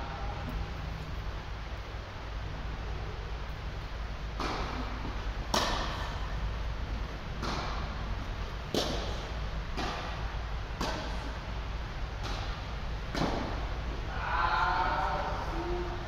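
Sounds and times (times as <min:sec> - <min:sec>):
steady low rumble: 0:00.0 - 0:16.0
tennis balls struck by rackets: 0:04.2 - 0:14.0.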